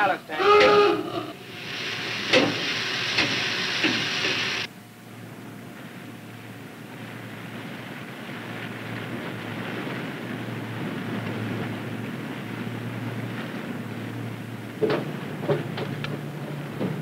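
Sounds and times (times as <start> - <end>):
water rushing: 0.0 - 4.7.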